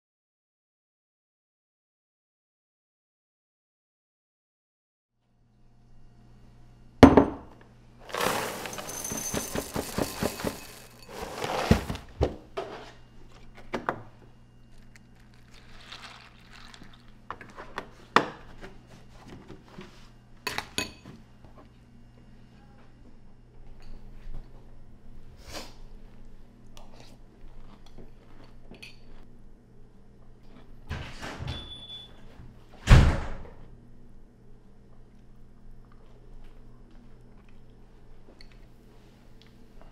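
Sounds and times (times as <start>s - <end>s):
dry cereal rattling into a bowl: 8.0s - 11.9s, 15.0s - 17.1s
loud door thud: 32.8s - 33.5s.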